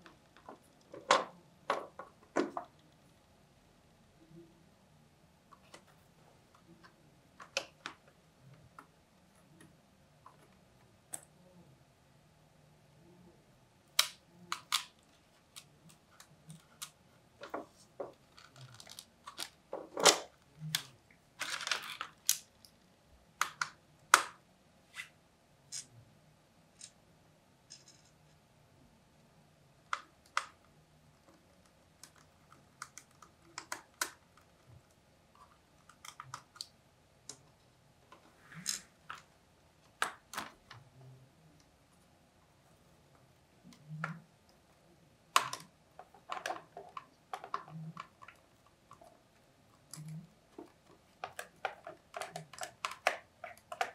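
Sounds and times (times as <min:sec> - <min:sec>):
laptop plastic clicks and scrapes: 0:49.8 - 0:53.9.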